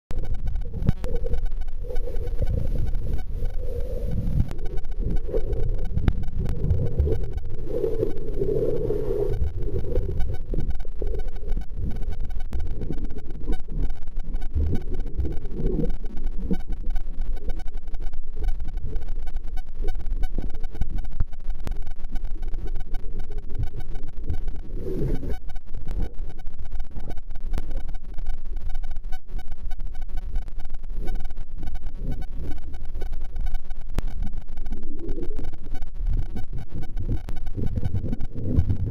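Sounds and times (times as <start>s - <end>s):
muffled underwater rumble: 0.1s - 38.9s
underwater swishes: 0.2s - 20.9s, 21.6s - 28.0s.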